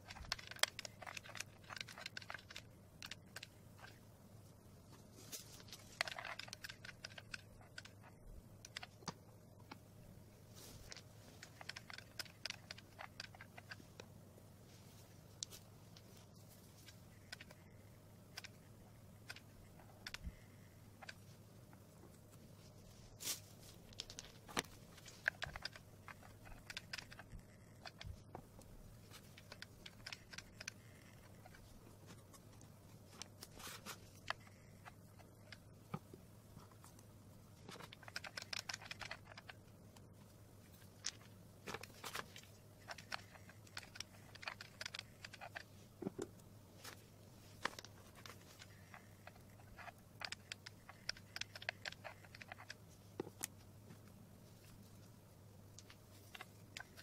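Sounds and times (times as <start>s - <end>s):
low steady hum: 0.0s - 57.0s
stones clicking on cardboard: 5.6s - 9.8s, 40.7s - 53.6s.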